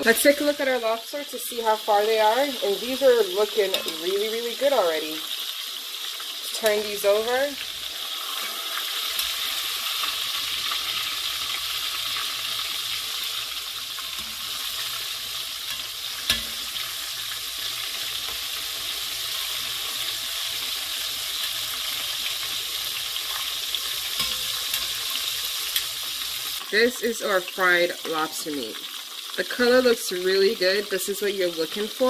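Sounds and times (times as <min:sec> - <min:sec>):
deep-frying sizzle in hot oil: 0:00.0 - 0:32.0
metal tongs turning food: 0:02.9 - 0:04.4, 0:09.0 - 0:18.5, 0:22.9 - 0:26.6.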